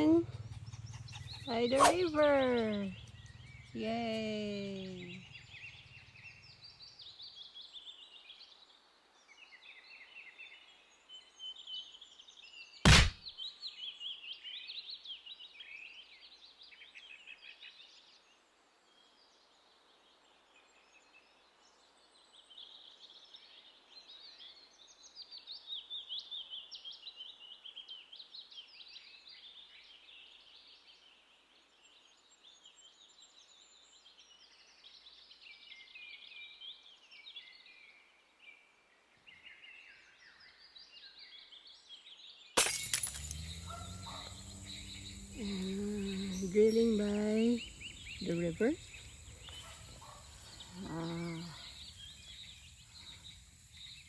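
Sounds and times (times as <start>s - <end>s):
birds chirping and twittering: 0.0s - 54.0s
sharp knock: 12.9s - 13.2s.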